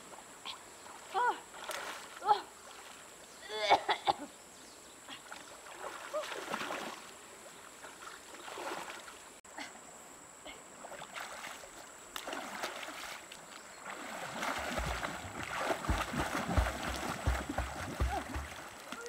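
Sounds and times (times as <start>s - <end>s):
water sloshing and splashing: 1.0s - 3.2s, 5.1s - 9.4s, 10.7s - 19.0s
dull thuds into water: 14.1s - 19.0s.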